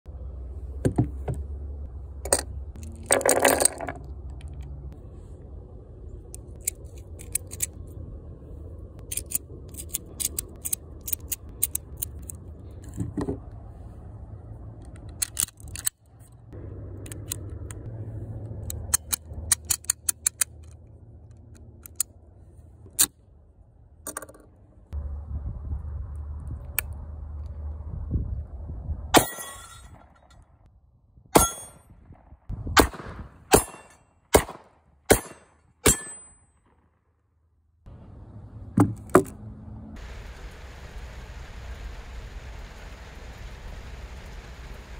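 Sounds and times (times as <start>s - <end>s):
cartridges clicking into magazine: 6.4s - 7.8s, 9.0s - 12.4s, 14.9s - 16.0s, 18.7s - 20.8s
pistol clicking and rattling: 6.4s - 7.8s, 9.0s - 12.5s, 14.8s - 16.2s, 18.7s - 22.1s
gunshot: 32.8s - 36.1s.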